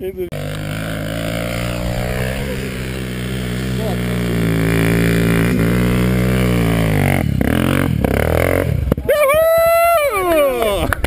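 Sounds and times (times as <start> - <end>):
dirt bike revving hard: 0.3 - 9.1
dirt bike engine running: 0.3 - 9.6.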